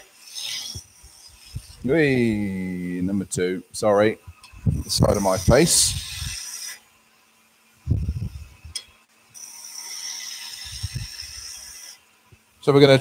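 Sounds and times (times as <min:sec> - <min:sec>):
chisel cutting wood on lathe: 0:00.0 - 0:02.0, 0:05.0 - 0:06.8, 0:09.4 - 0:12.0.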